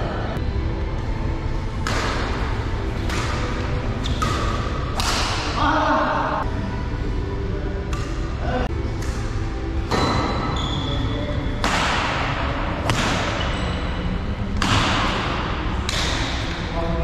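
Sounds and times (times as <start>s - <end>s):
rackets hitting shuttlecock: 1.8s - 5.6s, 7.9s - 8.3s, 11.5s - 16.7s.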